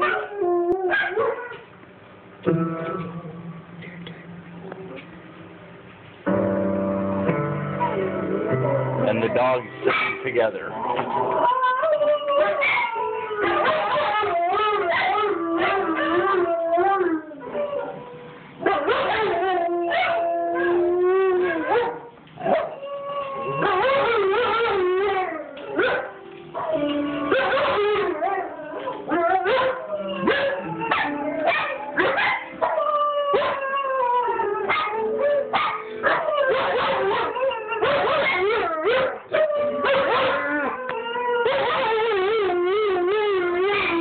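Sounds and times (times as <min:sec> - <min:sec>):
dogs howling: 0:00.0 - 0:01.6, 0:09.0 - 0:44.0
dog yips and whimpers: 0:11.4 - 0:16.2, 0:25.7 - 0:33.7, 0:34.7 - 0:42.3.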